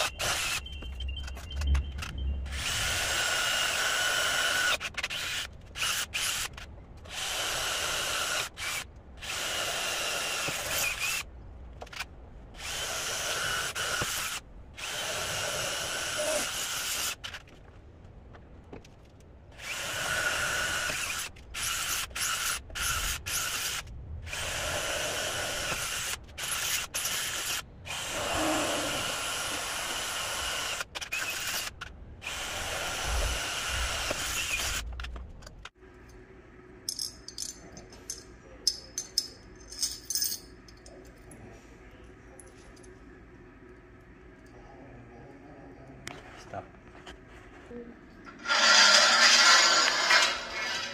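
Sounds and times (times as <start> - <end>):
cordless drill boring into metal: 2.5 - 6.5, 7.1 - 11.2, 12.6 - 17.3, 19.6 - 34.8, 48.4 - 50.9.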